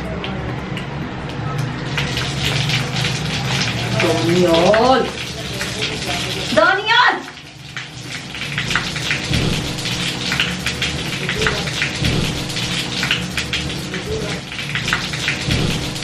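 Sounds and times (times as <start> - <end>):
carbonation fizzing: 1.1 - 16.0
soda pouring into a glass: 1.8 - 6.5.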